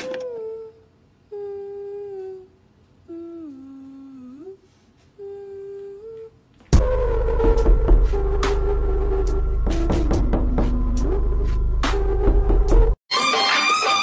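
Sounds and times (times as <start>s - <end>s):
woman humming long notes: 0.0s - 11.4s
loud music: 6.8s - 14.0s.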